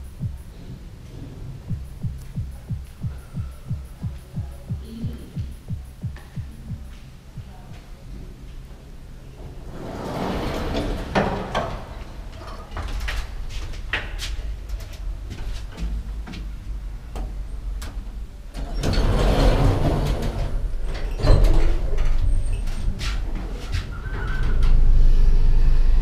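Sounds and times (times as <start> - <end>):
elevator rumble: 0.0 - 26.0
elevator doors sliding: 9.0 - 26.0.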